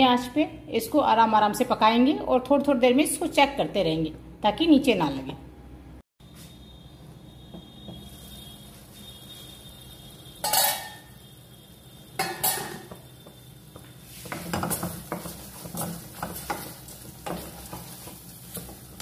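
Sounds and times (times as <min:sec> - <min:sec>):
metal pan clattering: 0:10.4 - 0:11.1, 0:12.2 - 0:13.0
spatula scraping a metal pan: 0:10.4 - 0:11.2, 0:12.2 - 0:13.1.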